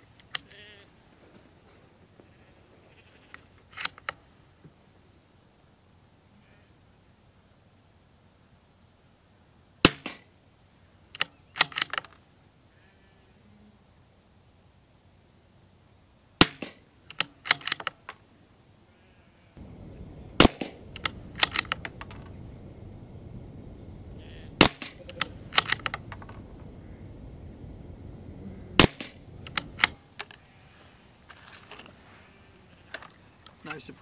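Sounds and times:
steady low background noise: 0:00.0 - 0:34.0
metallic bolt action clicks: 0:03.7 - 0:04.2, 0:11.2 - 0:12.2, 0:16.6 - 0:18.2, 0:20.4 - 0:22.3, 0:24.6 - 0:26.4, 0:28.8 - 0:30.4
rifle shots: 0:19.6 - 0:30.0.

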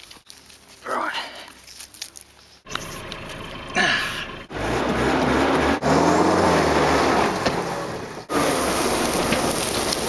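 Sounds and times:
engine revving: 0:02.7 - 0:10.0.

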